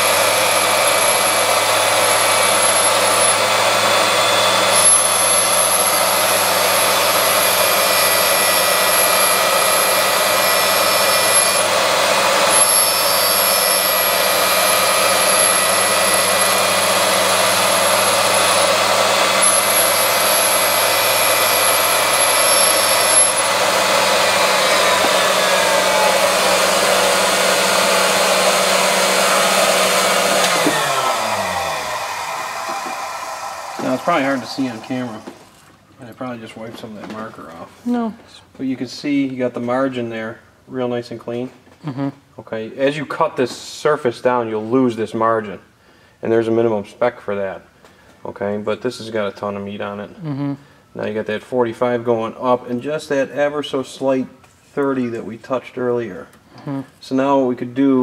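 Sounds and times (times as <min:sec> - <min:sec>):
grinding machine hum: 0:00.0 - 0:35.7
motor winding down: 0:00.0 - 0:35.7
high grinding whine: 0:00.0 - 0:38.0.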